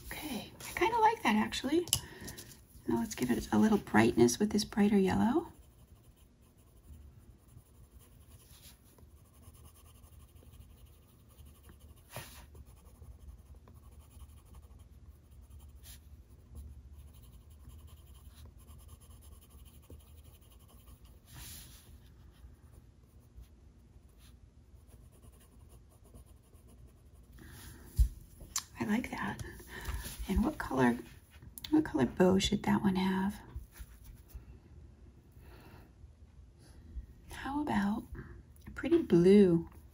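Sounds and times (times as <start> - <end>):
pencil scratching on paper: 2.3 - 22.3, 24.1 - 27.3.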